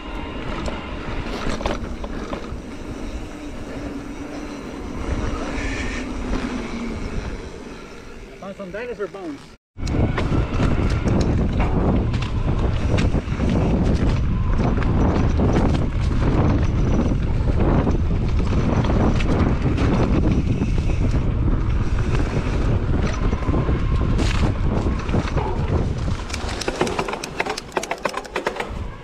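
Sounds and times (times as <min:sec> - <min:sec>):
bike clicks and rattles: 0:09.8 - 0:29.0
wind buffeting microphone: 0:09.8 - 0:29.0.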